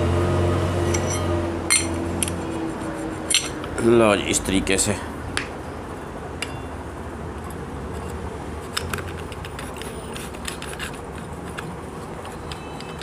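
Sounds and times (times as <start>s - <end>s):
light metallic clicks and clinks: 3.3s - 3.8s, 6.0s - 6.8s.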